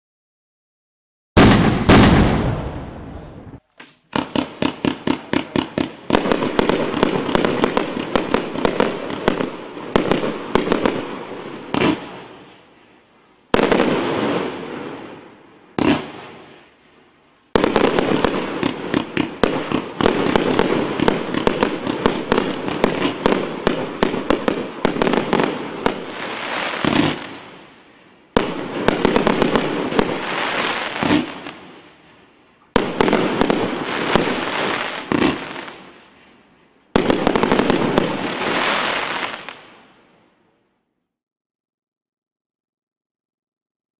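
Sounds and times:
fireworks firing in volleys: 1.4 - 40.4
firework shells bursting: 3.6 - 12.2, 17.6 - 27.5.

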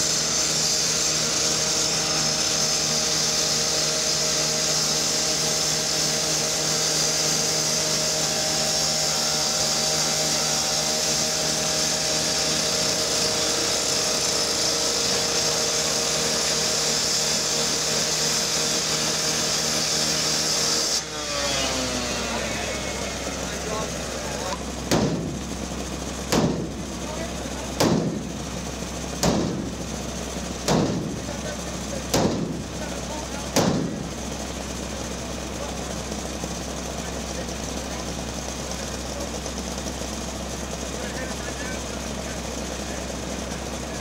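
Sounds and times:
power saw cutting steel: 0.0 - 44.0.

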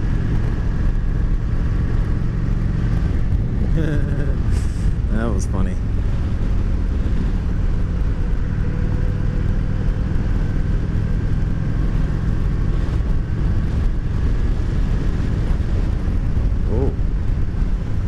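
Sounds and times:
motorcycle engine rumble: 0.0 - 18.0
wind rushing over microphone: 0.0 - 18.0.

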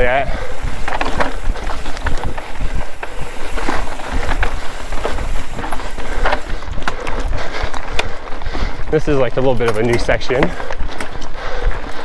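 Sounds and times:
wind rumble on microphone: 0.0 - 9.5
mountain bike rattling on dirt trail: 0.0 - 12.0.

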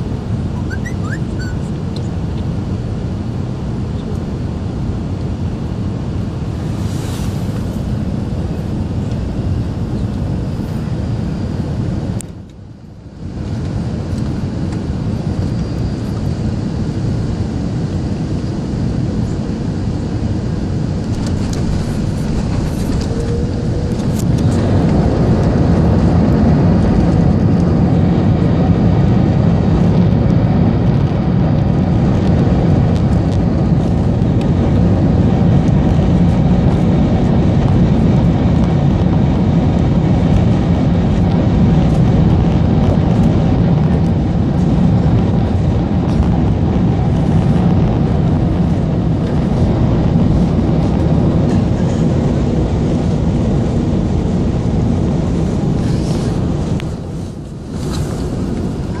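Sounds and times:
airliner cabin rumble: 0.0 - 59.0.

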